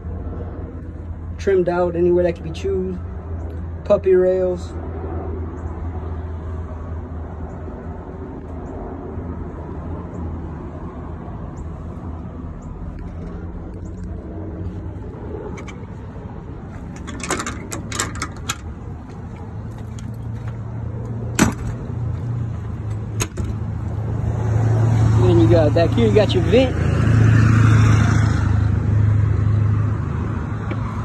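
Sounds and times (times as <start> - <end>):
low motor hum: 4.8 - 25.8.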